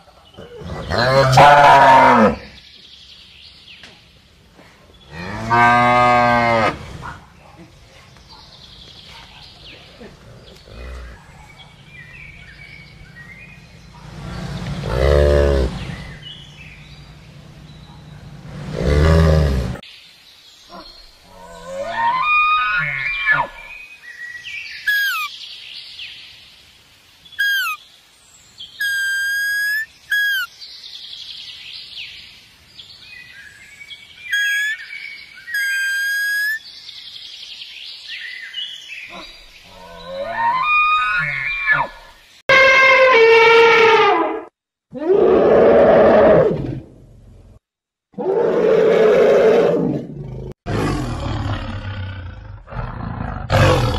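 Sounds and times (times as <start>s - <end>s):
high chirps and whistle-like calls: 22.1s - 25.6s, 27.3s - 27.9s, 28.6s - 31.6s, 33.2s - 41.9s.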